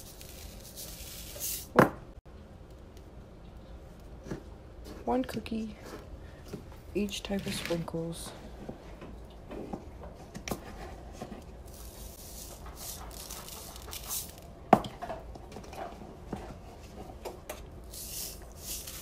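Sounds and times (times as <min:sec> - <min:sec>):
sprinkles pattering onto baking sheet: 0:00.0 - 0:01.6, 0:11.7 - 0:14.4, 0:17.9 - 0:19.0.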